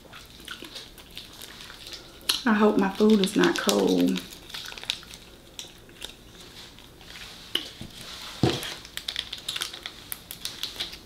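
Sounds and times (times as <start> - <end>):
chewing: 0.0 - 7.8
plastic packet crinkling: 0.2 - 7.8, 8.4 - 11.0.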